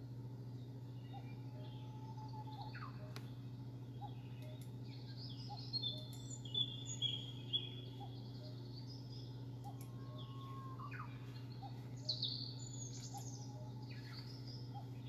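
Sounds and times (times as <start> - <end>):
steady low hum: 0.0 - 15.0
wild birds chirping and whistling: 0.0 - 15.0.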